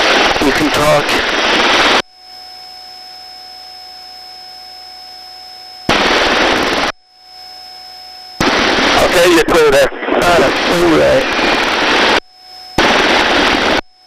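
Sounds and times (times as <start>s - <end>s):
faint electronic whine: 0.0s - 14.0s
helicopter rotor and engine noise: 5.9s - 13.8s.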